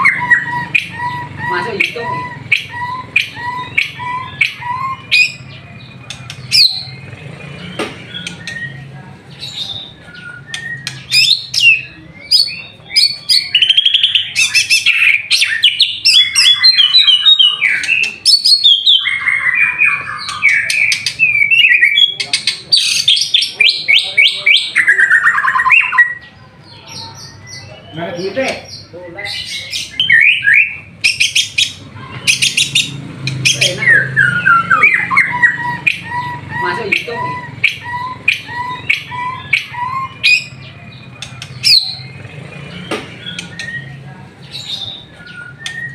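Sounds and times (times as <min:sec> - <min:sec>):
bird singing trilled whistles: 0:09.9 - 0:22.1, 0:44.8 - 0:45.9.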